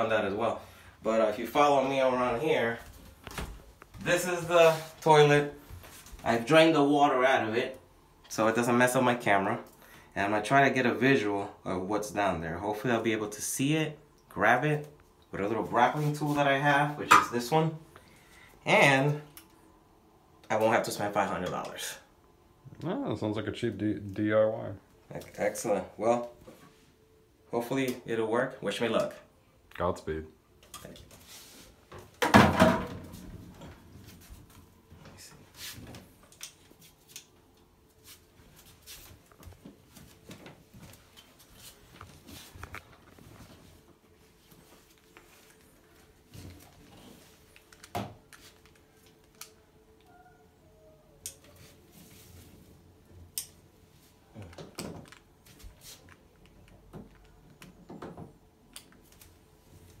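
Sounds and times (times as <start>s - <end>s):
cable clicks and rustles: 39.2s - 43.9s, 44.5s - 50.2s, 54.3s - 59.4s.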